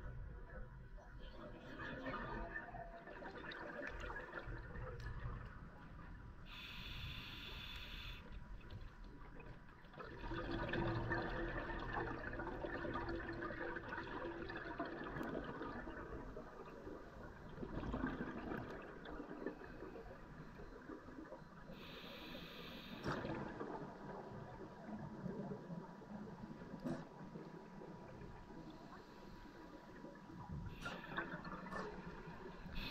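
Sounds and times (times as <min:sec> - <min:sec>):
exhaled bubbles underwater: 0:00.3 - 0:06.7, 0:09.1 - 0:22.0, 0:22.9 - 0:32.9
regulator inhale hiss: 0:06.5 - 0:08.4, 0:21.7 - 0:23.1.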